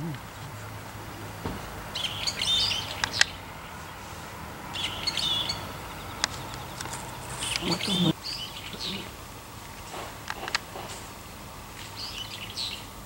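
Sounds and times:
bird chirping: 0:00.0 - 0:09.2, 0:11.8 - 0:13.0
sharp clicks: 0:02.9 - 0:03.4, 0:06.1 - 0:07.9.

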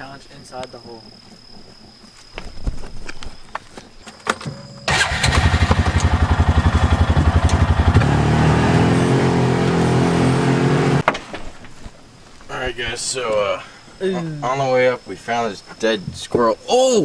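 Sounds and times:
utility vehicle engine idling: 0:04.9 - 0:11.0.

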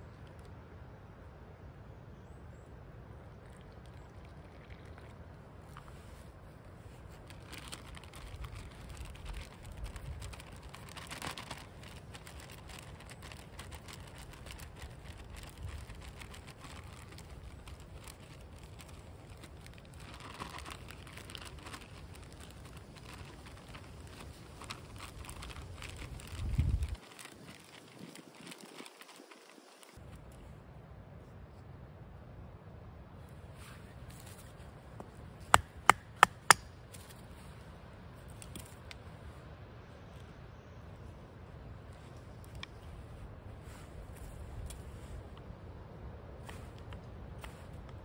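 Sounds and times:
plastic pouches crinkling: 0:06.9 - 0:30.0.

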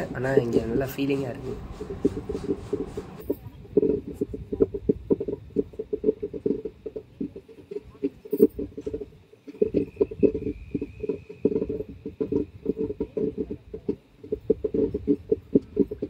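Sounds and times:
train wheels rattling on track: 0:00.0 - 0:04.7
faint high whine: 0:07.7 - 0:13.6.

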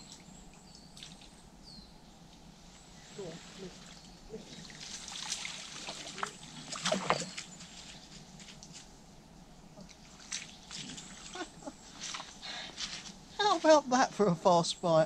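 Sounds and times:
fish thrashing and water splashing: 0:04.5 - 0:07.7, 0:09.8 - 0:13.2.

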